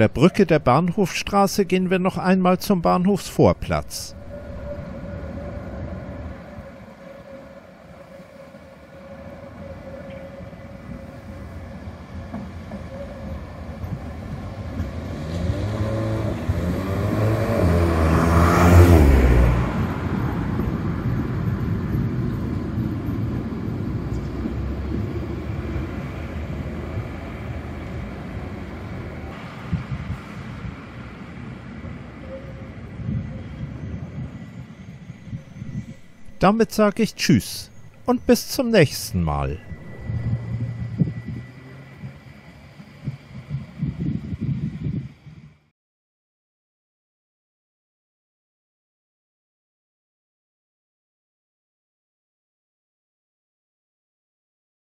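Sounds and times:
tram passing: 0.0s - 45.7s
tram whine dropping in pitch: 1.0s - 15.1s, 16.3s - 45.6s.

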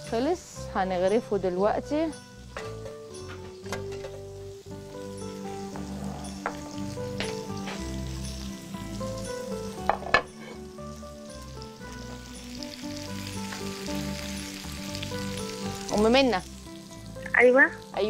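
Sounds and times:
fish sizzling on a grill pan: 0.0s - 18.0s
spatula knocking on pan: 9.8s - 10.3s.

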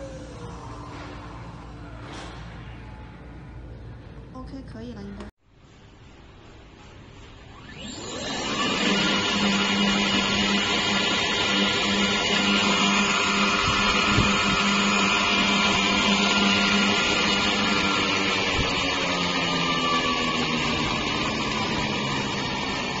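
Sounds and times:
electric motor whining: 7.6s - 23.0s.

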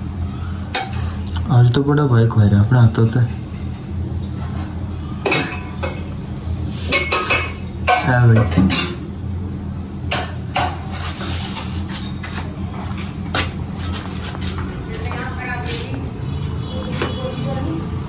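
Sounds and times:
pots and utensils clanking: 0.7s - 1.4s, 2.9s - 15.9s.

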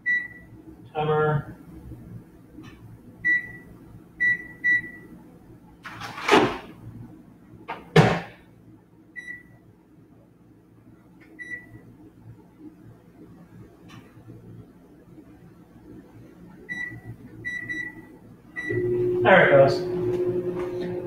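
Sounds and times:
microwave keypad beeps: 0.0s - 0.5s, 3.3s - 5.1s, 9.2s - 9.5s, 11.4s - 11.8s, 16.7s - 18.0s, 18.6s - 18.9s.

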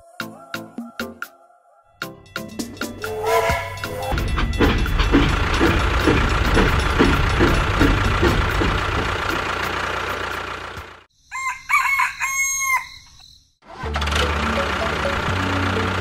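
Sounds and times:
mechanical running noise: 3.8s - 10.9s, 13.7s - 16.0s
rooster crowing: 11.3s - 13.2s.

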